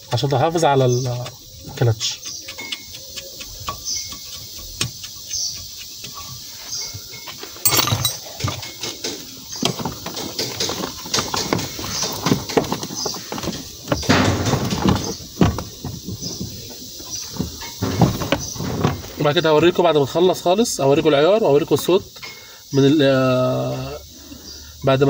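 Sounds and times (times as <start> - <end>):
tools clicking and rattling on metal: 7.6 - 9.2.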